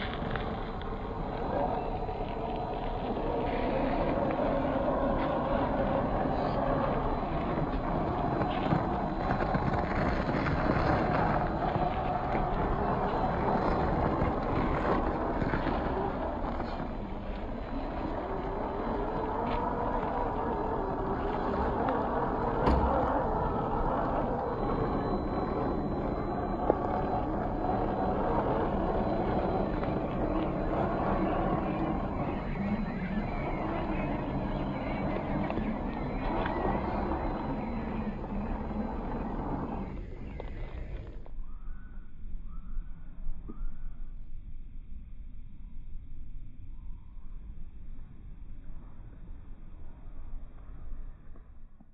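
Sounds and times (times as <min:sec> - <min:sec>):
electric motor whining: 0:00.0 - 0:41.3.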